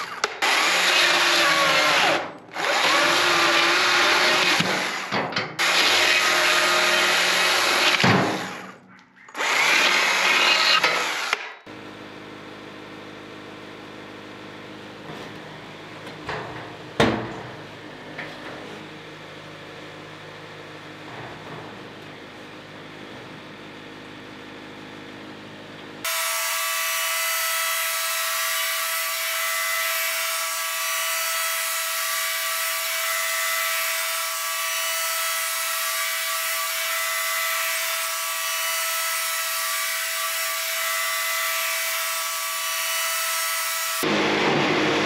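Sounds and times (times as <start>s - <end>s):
band saw blade cutting log: 0.0s - 11.6s.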